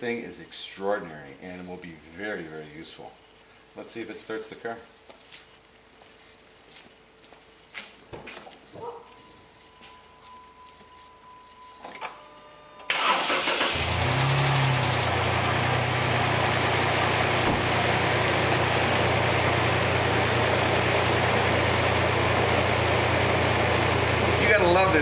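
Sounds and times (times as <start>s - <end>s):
car engine cranking and idling: 12.9s - 25.0s.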